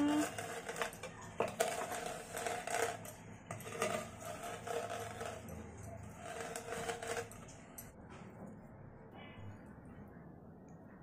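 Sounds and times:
rolling pin crushing spices: 0.0s - 7.6s.

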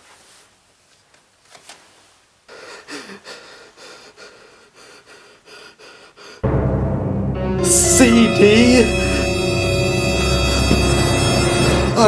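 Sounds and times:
person breathing through mouth: 2.5s - 6.4s.

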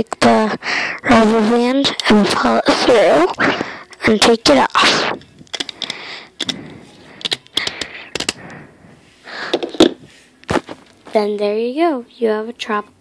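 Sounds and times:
rustling: 9.0s - 11.4s.

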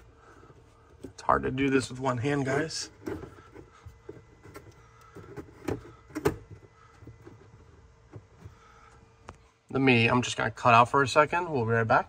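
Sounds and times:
plastic filter knocking and scraping: 2.8s - 8.7s.

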